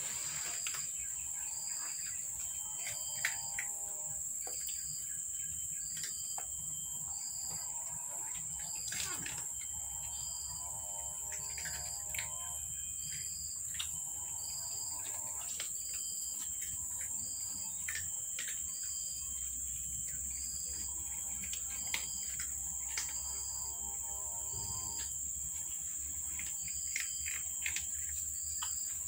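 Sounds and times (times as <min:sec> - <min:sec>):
high-pitched insect drone: 0:00.0 - 0:29.0
cats crunching dry kibble: 0:08.1 - 0:09.8, 0:19.7 - 0:29.0.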